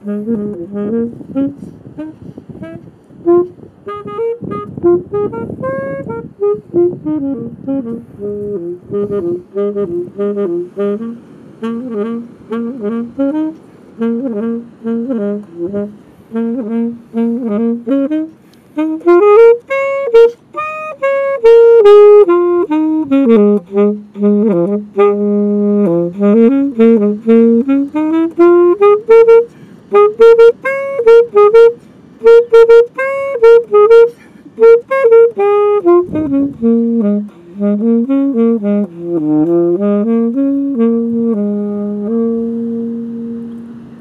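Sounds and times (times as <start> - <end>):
saxophone-like wind melody: 0.0 - 44.0.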